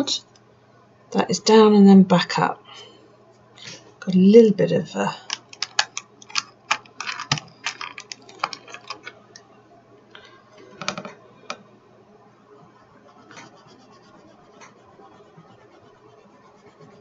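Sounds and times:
pencils clattering in plastic case: 5.2s - 9.2s
pencil scratching on paper: 12.9s - 17.0s.

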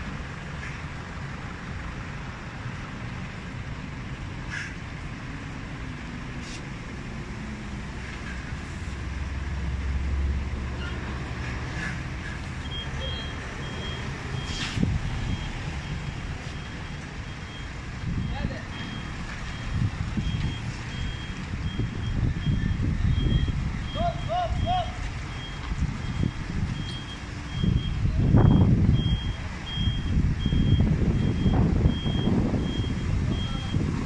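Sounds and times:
reversing alarm beeping: 12.6s - 33.9s.

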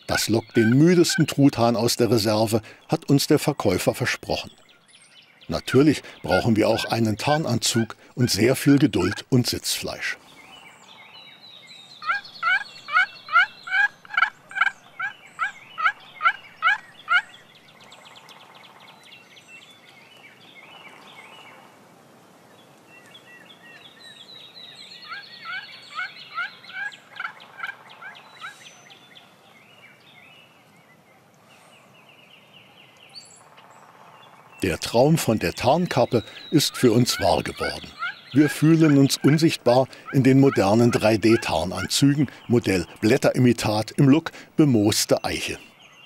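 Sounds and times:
turkey call yelps: 12.0s - 17.3s, 25.1s - 28.6s, 36.3s - 41.9s.

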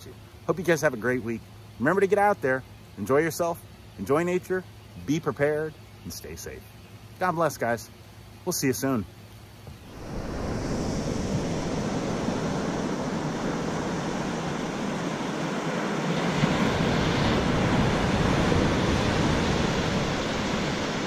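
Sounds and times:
ocean waves breaking on beach: 9.7s - 21.0s.

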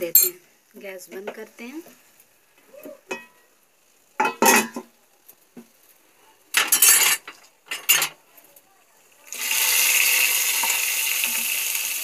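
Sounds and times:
pans clattering on stove grates: 4.2s - 5.0s, 6.5s - 8.2s.

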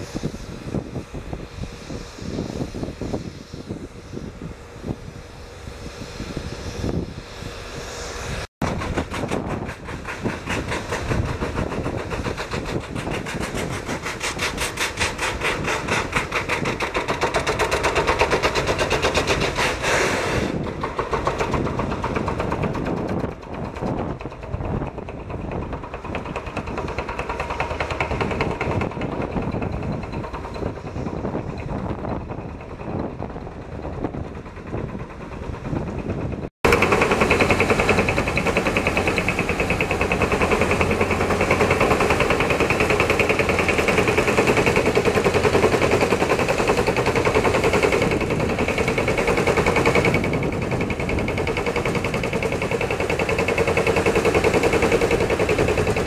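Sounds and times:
drill rig hammering: 8.6s - 56.0s.

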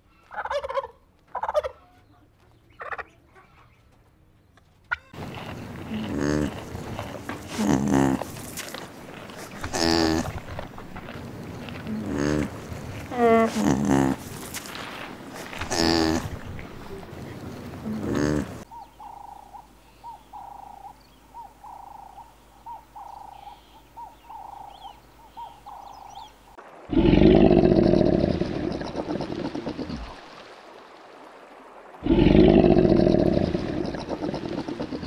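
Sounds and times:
loud deep animal calls: 26.9s - 30.2s, 32.0s - 35.0s.

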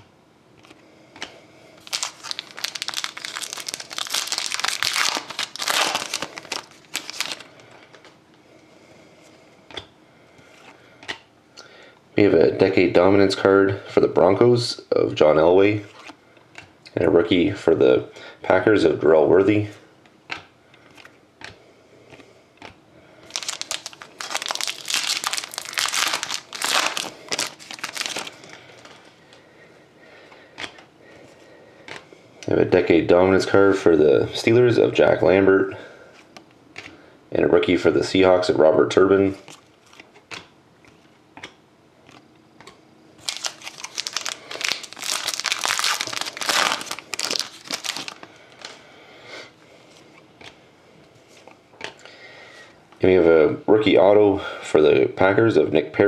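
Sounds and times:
foil wrapper tearing and crinkling: 1.8s - 7.6s, 23.3s - 28.5s, 43.2s - 48.8s.

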